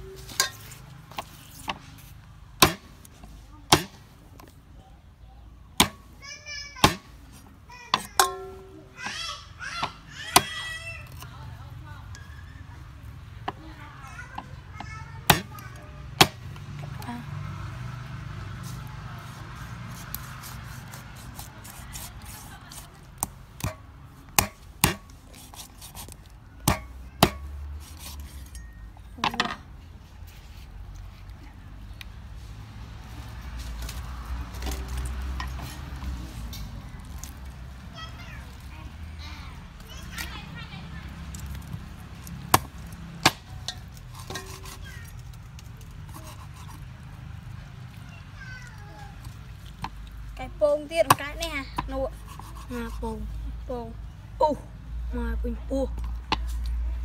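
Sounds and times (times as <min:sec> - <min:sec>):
cleaver chopping on wooden board: 0:02.6 - 0:02.9, 0:03.7 - 0:04.0, 0:05.8 - 0:06.0, 0:06.8 - 0:07.1, 0:15.3 - 0:15.5, 0:16.2 - 0:16.4, 0:19.9 - 0:28.3, 0:42.2 - 0:43.5.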